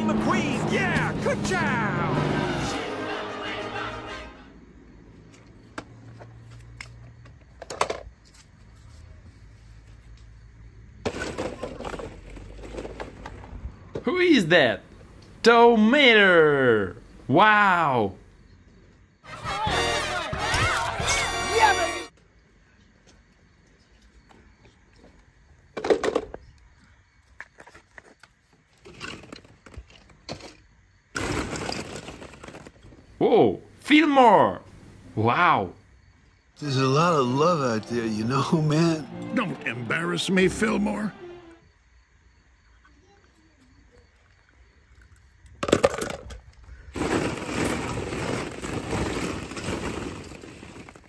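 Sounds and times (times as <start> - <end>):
plastic toys clattering: 7.5 - 8.1, 11.0 - 13.5, 28.8 - 30.6, 31.2 - 33.0, 45.0 - 51.0
plastic balls rustling: 11.1 - 13.4, 31.2 - 33.0, 45.8 - 51.0.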